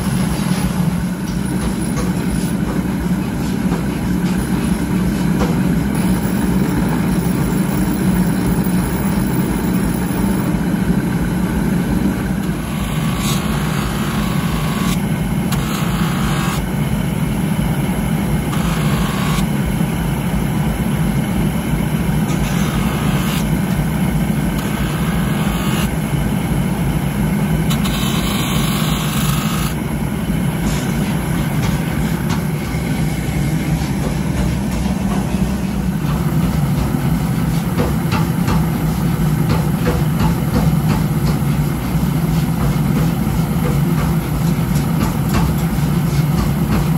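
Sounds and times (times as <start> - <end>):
grinding wheel humming: 5.9 - 19.8, 20.9 - 26.6, 27.5 - 37.0.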